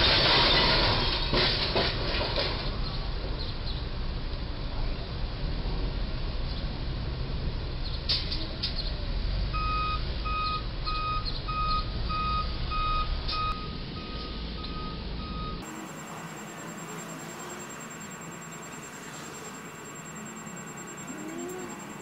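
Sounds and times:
low rumble of engines and traffic: 0:00.0 - 0:22.0
truck backup alarm beeping: 0:09.5 - 0:22.0.

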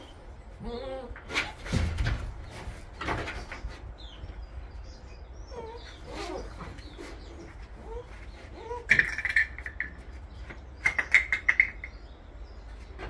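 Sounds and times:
puppies whimpering: 0:00.0 - 0:01.2, 0:05.2 - 0:08.9.

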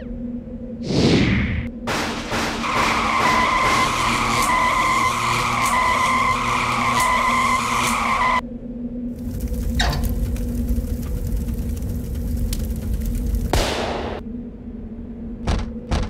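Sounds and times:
long tyre screech: 0:02.7 - 0:08.4.

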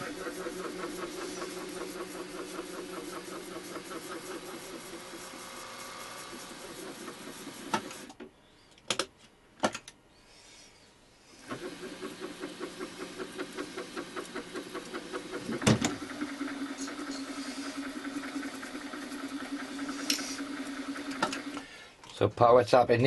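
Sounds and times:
milling machine motor whirring: 0:00.0 - 0:08.1, 0:11.4 - 0:21.6.

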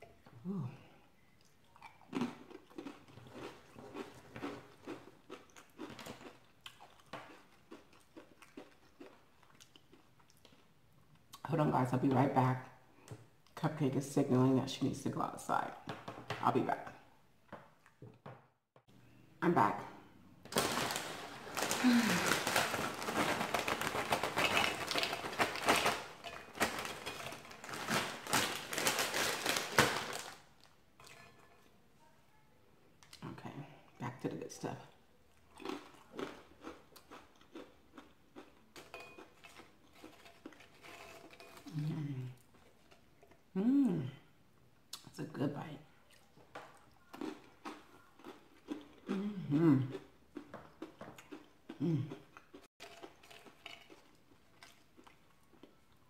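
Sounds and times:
person chewing crunchy chips: 0:01.4 - 0:11.4, 0:20.5 - 0:30.7, 0:35.3 - 0:43.5, 0:46.1 - 0:56.0
chip bag crinkling: 0:20.5 - 0:30.8.

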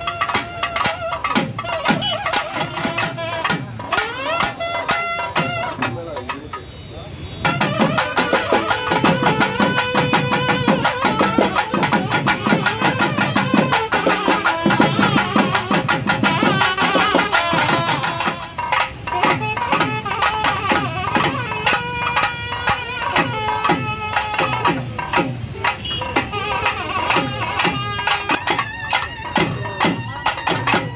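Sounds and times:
wind instruments playing melody: 0:00.0 - 0:30.9.

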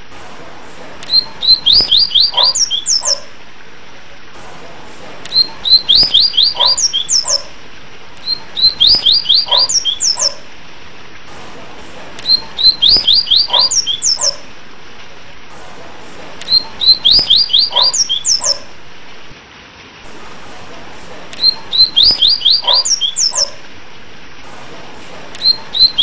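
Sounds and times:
steady background hiss: 0:00.0 - 0:26.0
bird whistle song: 0:01.1 - 0:03.3, 0:05.3 - 0:07.5, 0:08.2 - 0:10.4, 0:12.2 - 0:14.4, 0:16.4 - 0:18.7, 0:21.4 - 0:23.6, 0:25.4 - 0:26.0.

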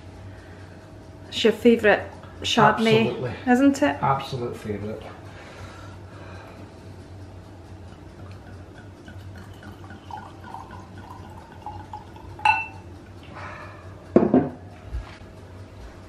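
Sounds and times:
glass clinking: 0:07.9 - 0:12.9
wine glugging into a glass: 0:08.8 - 0:12.8
bottle knocking on stone: 0:14.2 - 0:14.6.

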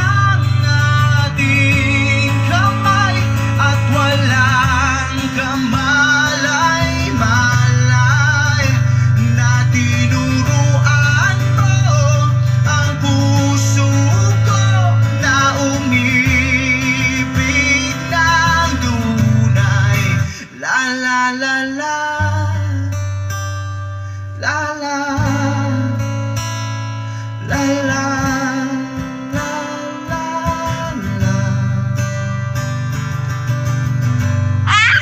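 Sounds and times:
pop song over loudspeakers: 0:00.0 - 0:23.0, 0:27.5 - 0:32.7, 0:34.2 - 0:35.0.

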